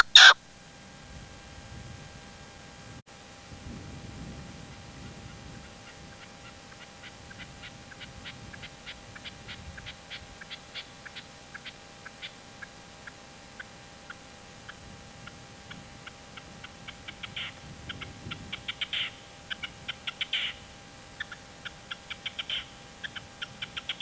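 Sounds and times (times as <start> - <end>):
partridge calling: 0.0 - 0.4, 5.2 - 24.0.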